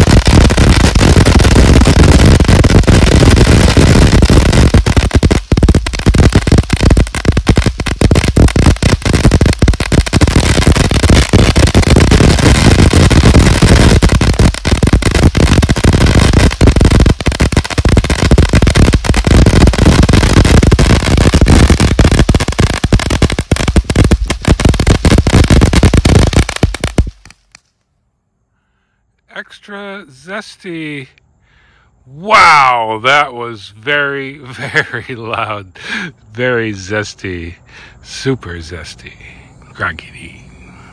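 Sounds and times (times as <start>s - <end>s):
firework fountain crackling: 0.0s - 27.6s.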